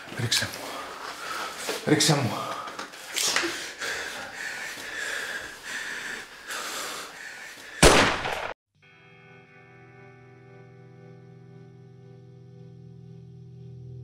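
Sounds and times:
person breathing hard: 0.6s - 8.0s
pistol shot: 7.8s - 8.6s
faint guitar music: 8.8s - 14.0s.

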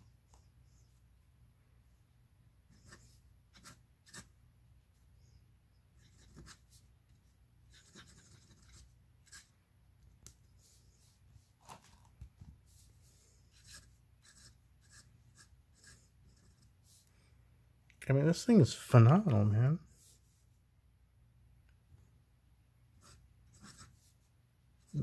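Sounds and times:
fountain pen scratching on paper: 2.7s - 4.3s, 6.0s - 6.8s, 7.7s - 9.5s, 13.5s - 16.7s, 23.0s - 24.2s.

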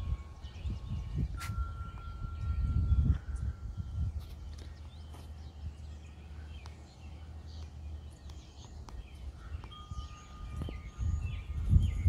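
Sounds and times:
wind chimes ringing: 0.0s - 5.2s, 8.4s - 12.0s
small birds chirping: 0.0s - 12.0s.

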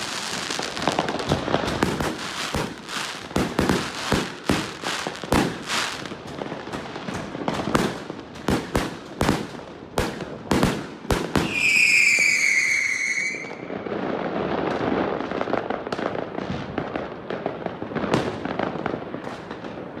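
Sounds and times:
firework bangs: 0.0s - 20.0s
firework crackling: 0.0s - 20.0s
firework whistling: 11.2s - 13.9s.

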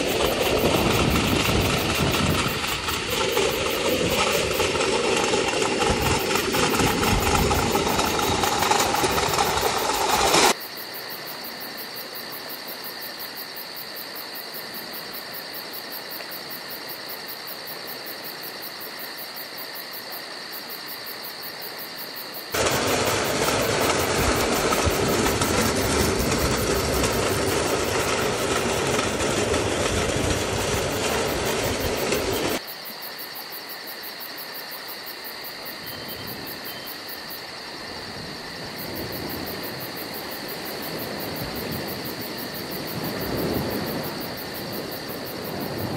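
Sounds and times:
wheels rumbling on rails: 0.0s - 10.6s, 22.6s - 32.6s.

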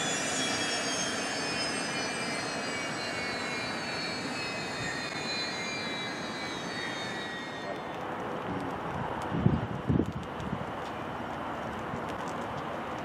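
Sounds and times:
turboprop engines whining: 0.0s - 8.2s.

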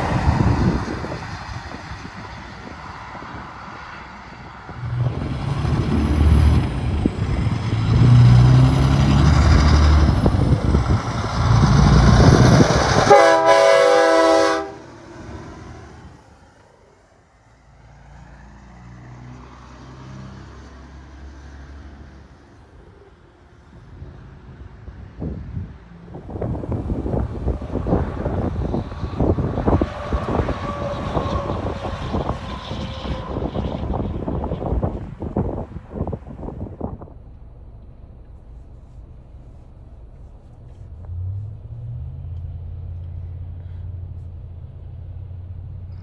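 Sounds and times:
truck diesel engine passing: 0.0s - 46.0s
truck air horn blast: 12.9s - 15.0s.

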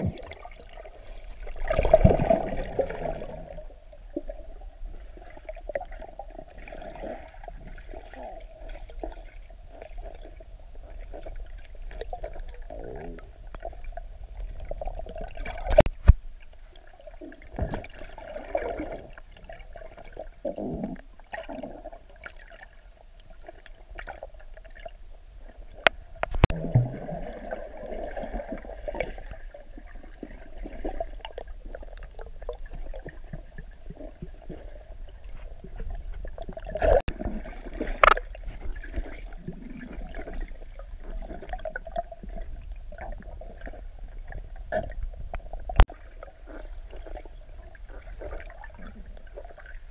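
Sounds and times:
muffled underwater water wash: 0.0s - 49.9s.

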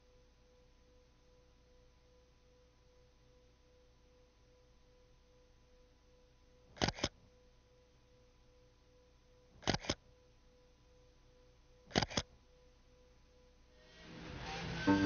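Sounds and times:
faint steady hum: 0.0s - 15.0s
camera shutter double click: 6.8s - 7.2s, 9.6s - 10.0s, 11.9s - 12.3s.

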